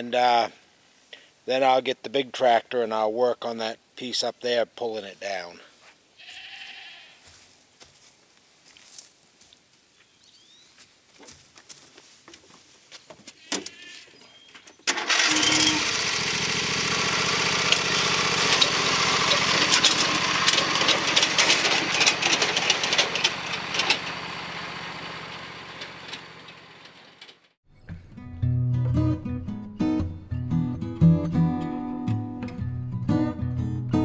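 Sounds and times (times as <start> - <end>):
lawn tractor engine running: 14.8 - 27.6.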